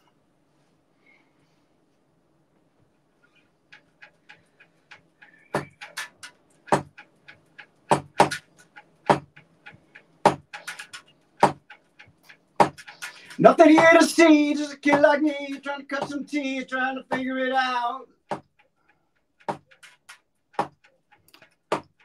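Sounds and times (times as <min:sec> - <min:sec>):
drum stick ticks: 0:03.7 - 0:18.7.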